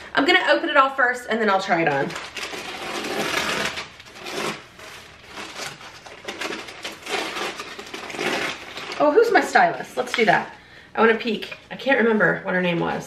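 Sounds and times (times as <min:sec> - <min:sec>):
hands rustling packaging: 0:01.8 - 0:10.4.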